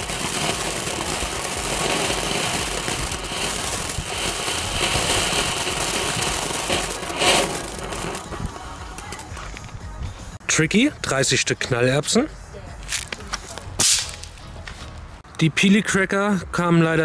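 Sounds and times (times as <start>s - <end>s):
fountain firework hissing sparks: 0.0s - 9.7s.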